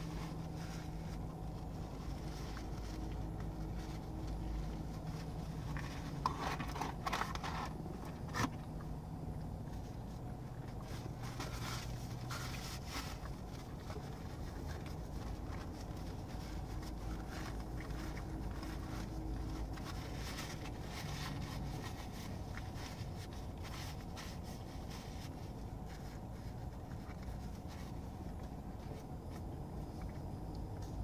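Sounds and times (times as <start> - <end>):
paper wrapper crinkling: 0.0 - 8.7
biting and chewing food: 0.0 - 23.7
low car interior hum: 0.0 - 31.0.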